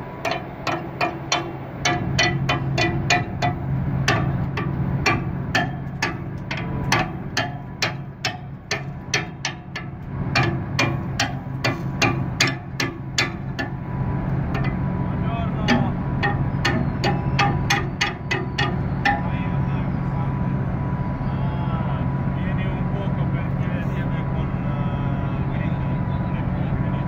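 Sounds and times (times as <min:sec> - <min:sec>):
sharp ringing knocks: 0:00.0 - 0:19.9
ferry machinery humming: 0:00.0 - 0:27.0.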